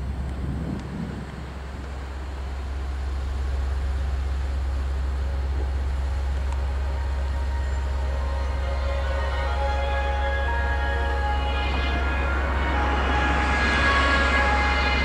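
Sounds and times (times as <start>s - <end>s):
diesel engine drone: 0.0s - 15.0s.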